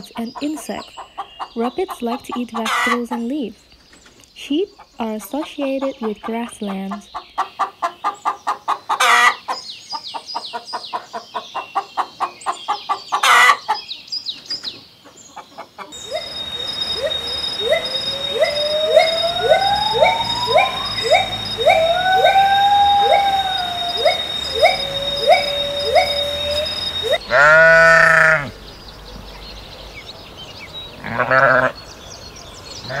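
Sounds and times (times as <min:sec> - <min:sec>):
rooster clucking: 0:00.2 - 0:03.3, 0:05.1 - 0:09.6, 0:10.2 - 0:13.8
high-pitched tone: 0:16.0 - 0:27.5
gibbon whooping: 0:16.0 - 0:28.2.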